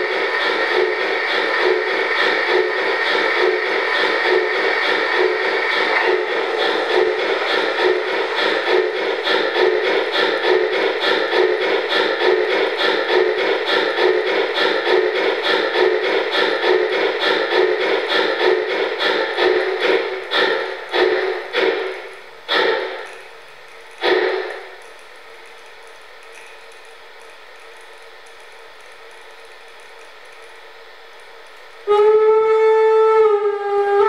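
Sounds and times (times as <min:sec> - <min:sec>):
steam engine chuffing from loudspeaker: 0:00.0 - 0:23.2, 0:24.0 - 0:24.8, 0:31.8 - 0:34.0.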